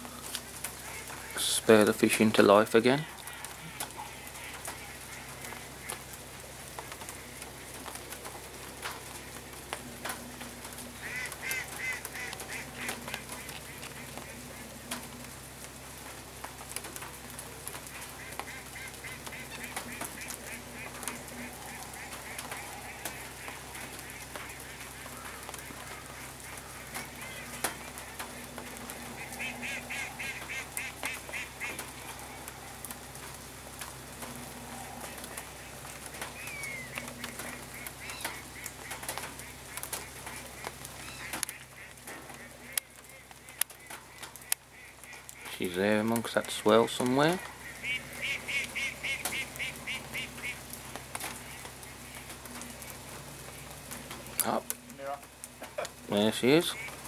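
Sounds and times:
faint scattered ticks: 0.0 - 57.0
waterfowl calling: 0.0 - 57.0.

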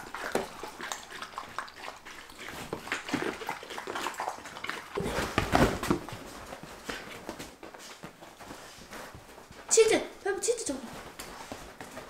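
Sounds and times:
dogs crunching dry kibble: 0.0 - 7.4
rustling and thumping: 5.0 - 9.8, 10.8 - 12.0.

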